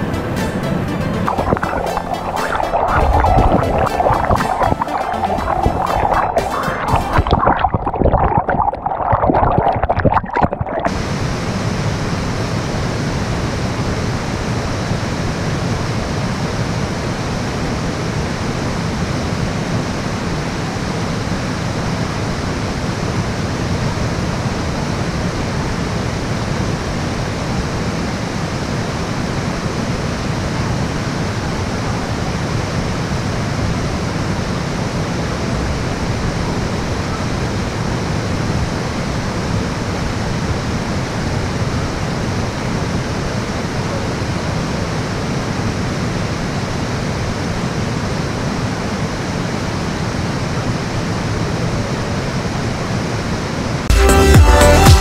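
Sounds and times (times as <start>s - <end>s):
waterfall rushing: 0.7s - 12.3s.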